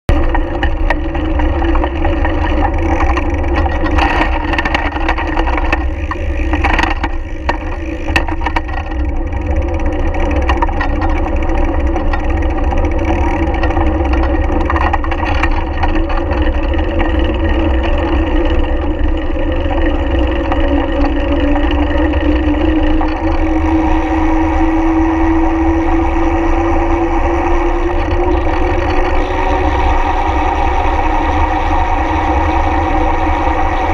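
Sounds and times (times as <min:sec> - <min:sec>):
steady hum: 0:00.1 - 0:33.9
tyres rolling on asphalt: 0:00.1 - 0:33.9
wind rumble on microphone: 0:00.1 - 0:33.9.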